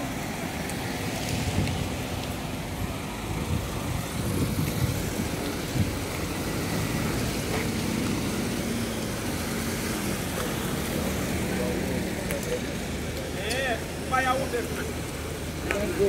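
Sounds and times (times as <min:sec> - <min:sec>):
car engine rumble: 0:00.0 - 0:16.0.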